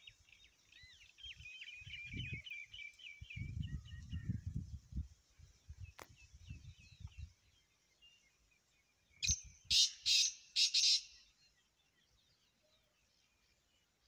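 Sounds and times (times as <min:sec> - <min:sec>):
bird rasping call: 0:09.7 - 0:11.2.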